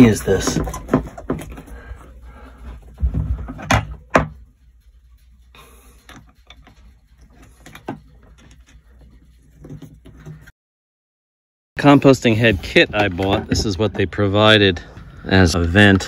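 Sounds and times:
screwdriver scraping and ticking: 0:06.0 - 0:10.1.

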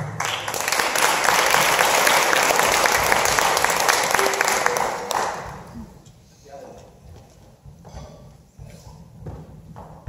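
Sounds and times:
audience applauding: 0:00.0 - 0:05.9.

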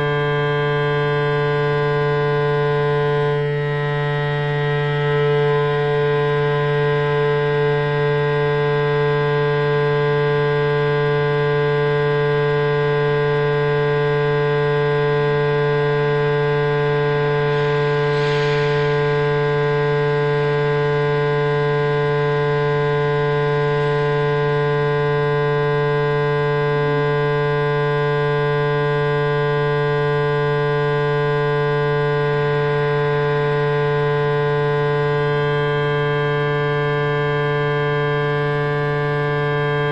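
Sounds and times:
low droning hum: 0:14.3 - 0:26.8.

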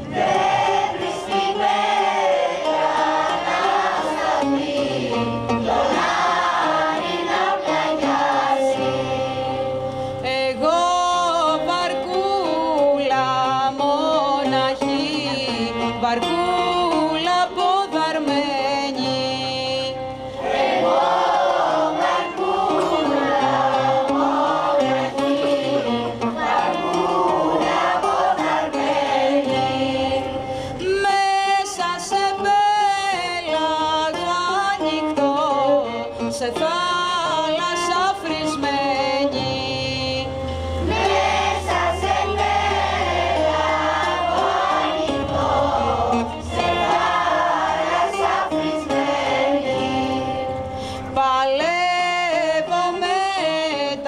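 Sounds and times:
mixed choir singing: 0:00.0 - 0:19.1, 0:20.4 - 0:33.7, 0:40.7 - 0:50.7.

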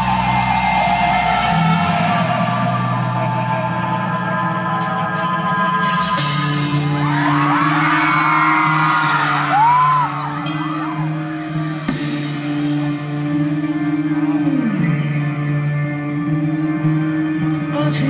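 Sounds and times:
live rock band playing: 0:04.8 - 0:18.0
audience whooping and screaming: 0:06.5 - 0:12.9.

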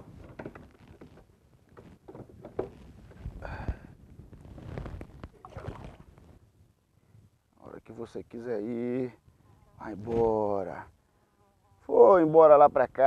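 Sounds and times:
water splashing and sloshing: 0:05.4 - 0:06.2.

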